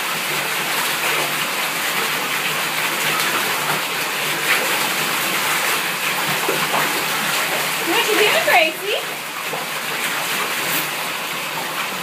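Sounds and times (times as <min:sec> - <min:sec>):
water pouring from faucet into tub: 0:00.0 - 0:12.0
dog splashing in water: 0:02.0 - 0:10.9.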